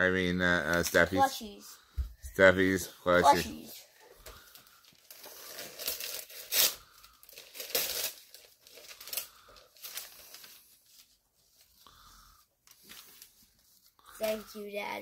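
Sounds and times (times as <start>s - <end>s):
paper rustling: 4.2s - 11.9s, 12.6s - 14.0s
wrapping paper ripping: 4.6s - 11.8s.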